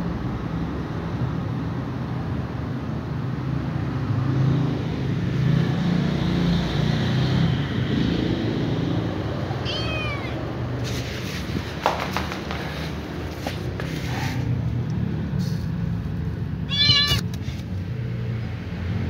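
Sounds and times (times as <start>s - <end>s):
kitten meowing: 9.6s - 10.6s, 16.6s - 17.4s.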